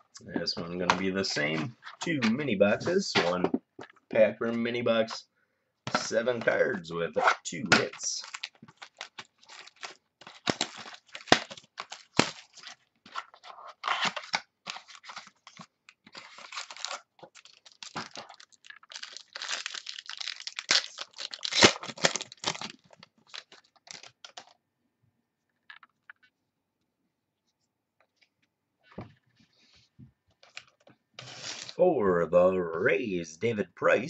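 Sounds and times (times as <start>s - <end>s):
wrapper tearing and crinkling: 7.8s - 15.6s, 16.2s - 24.5s.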